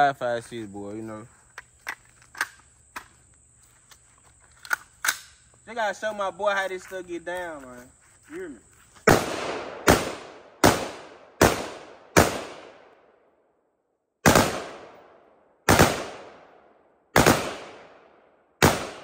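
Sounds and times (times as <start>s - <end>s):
gunshots with echo: 9.1s - 13.0s, 17.2s - 18.0s, 18.6s - 19.0s.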